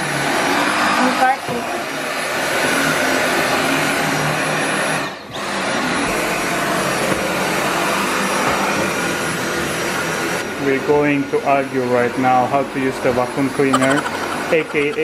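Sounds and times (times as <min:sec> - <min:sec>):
vacuum cleaner running on carpet: 0:00.0 - 0:11.9.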